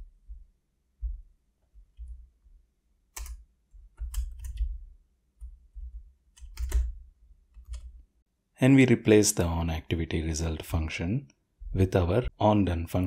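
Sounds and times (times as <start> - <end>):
dull low thumps: 0.0 - 2.2
keyboard keystroke clicks: 3.2 - 3.4, 4.0 - 4.7, 6.4 - 7.0, 7.6 - 7.9.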